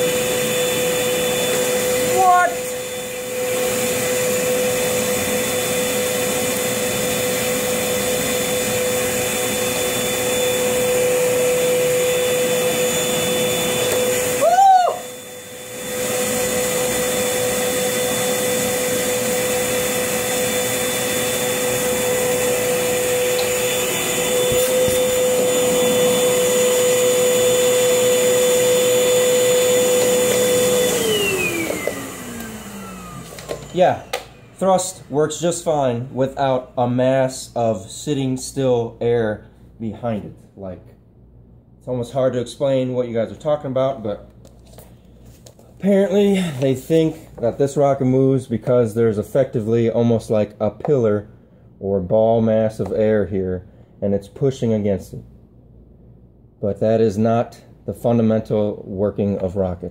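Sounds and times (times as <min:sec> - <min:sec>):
vacuum cleaner motor whine: 0:00.0 - 0:38.5.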